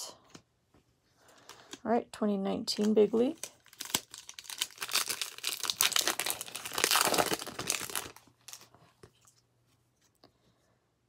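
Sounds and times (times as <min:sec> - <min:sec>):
foil wrapper tearing and crinkling: 0:03.3 - 0:08.7.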